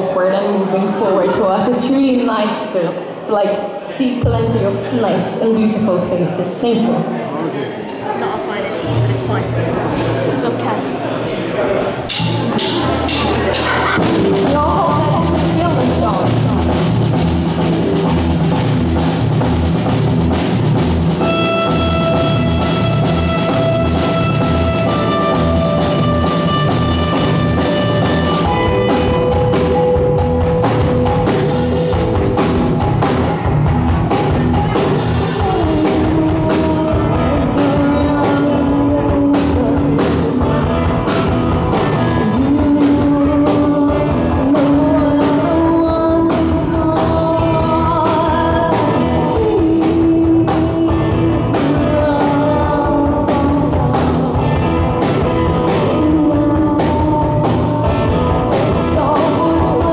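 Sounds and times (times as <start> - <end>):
drum kit: 8.7 - 10.2, 12.0 - 59.9
bass guitar: 8.7 - 10.5, 11.9 - 59.9
electric guitar: 12.1 - 59.9
woman singing: 14.3 - 16.4, 35.3 - 40.7, 41.9 - 59.9.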